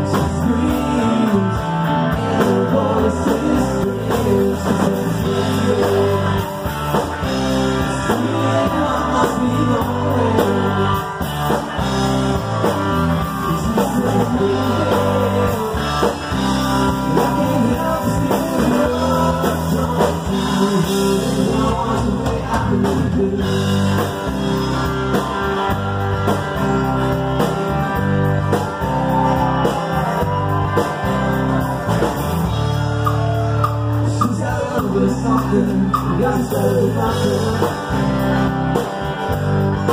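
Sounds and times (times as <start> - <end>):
lead vocal singing: 0.0 - 12.0, 12.7 - 24.4, 33.2 - 38.3
acoustic guitar: 0.0 - 39.9
drum kit: 0.0 - 39.9
electric bass: 0.0 - 39.9
electric guitar: 0.0 - 39.9.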